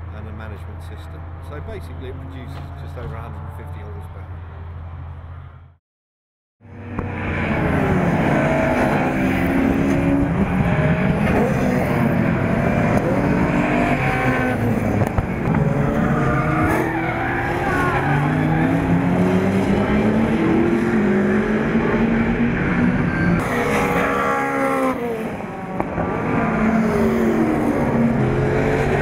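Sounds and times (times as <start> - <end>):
race car engines accelerating: 6.6 - 29.0.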